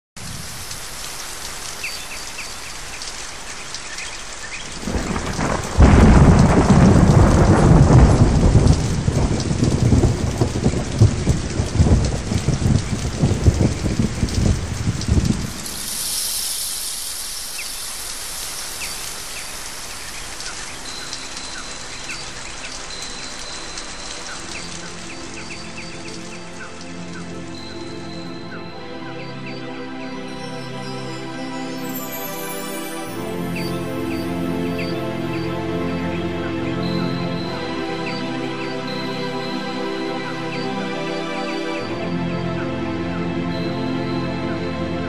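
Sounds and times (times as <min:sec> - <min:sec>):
regulator inhalation hiss: 0:15.5 - 0:20.2.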